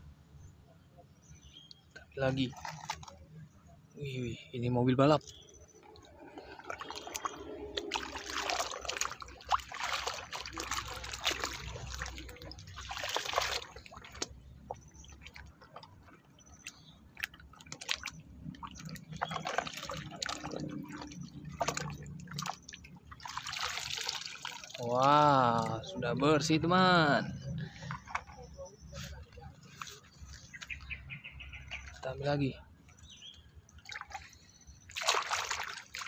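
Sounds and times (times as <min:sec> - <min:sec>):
water sloshing and splashing: 0:01.5 - 0:04.0, 0:04.7 - 0:36.0
water dripping: 0:05.2 - 0:26.2.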